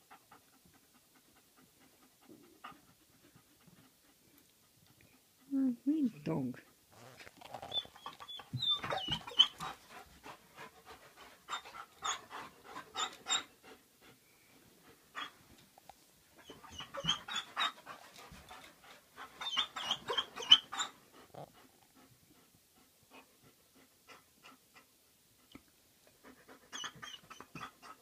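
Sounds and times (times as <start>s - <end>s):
dog panting: 0.0s - 6.0s, 6.6s - 15.7s, 16.3s - 28.0s
short high squeaks: 7.0s - 9.6s.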